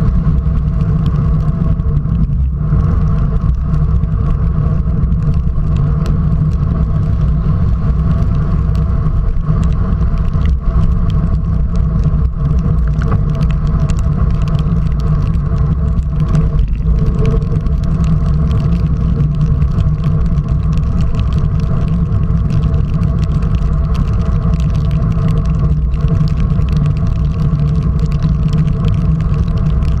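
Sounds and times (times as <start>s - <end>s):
tyre noise on wet road: 0.0s - 30.0s
wind rumble: 0.0s - 30.0s
water drops ticking on camera: 9.5s - 30.0s.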